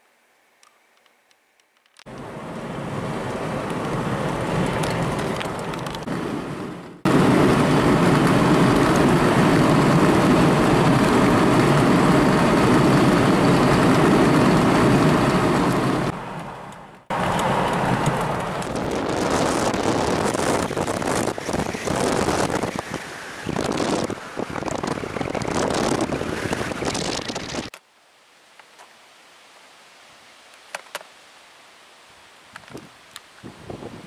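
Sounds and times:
car road and wind noise: 0:02.1 - 0:27.7, 0:32.6 - 0:34.0.

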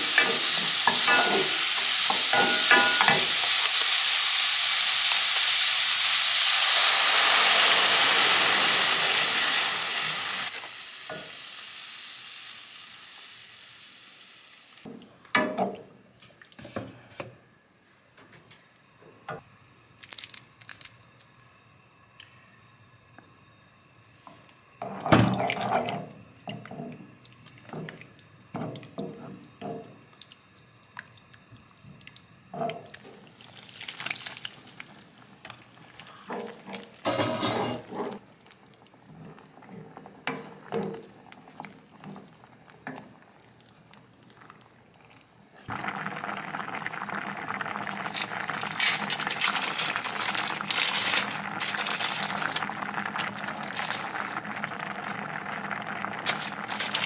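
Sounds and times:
sauce bubbling with crackles: 0:25.4 - 0:37.0, 0:38.0 - 0:57.0.

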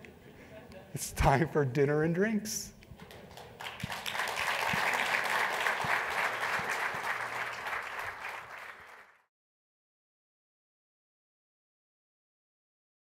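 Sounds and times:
audience applauding: 0:03.0 - 0:09.3.

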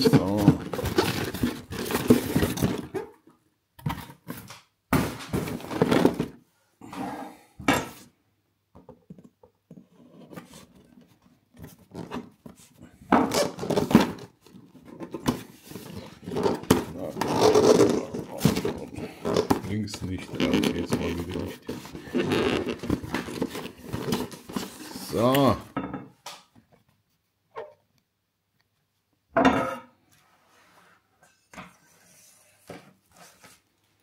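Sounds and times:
cardboard rustling and scraping: 0:00.0 - 0:03.2, 0:05.0 - 0:06.4, 0:09.7 - 0:25.6, 0:31.7 - 0:34.0.

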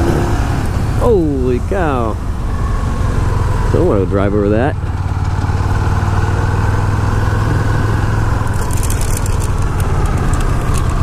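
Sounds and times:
motorcycle engine cruising: 0:00.0 - 0:11.0
short sharp crackles: 0:08.4 - 0:11.0.

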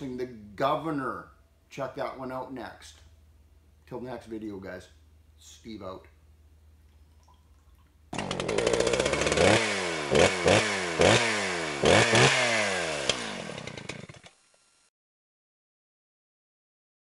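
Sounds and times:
engine revving in throttle blips: 0:08.2 - 0:14.0.

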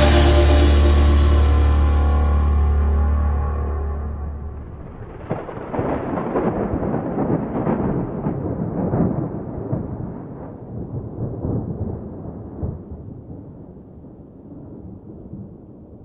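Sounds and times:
background music: 0:00.0 - 0:05.0
rolling thunder rumble: 0:00.0 - 0:16.0.

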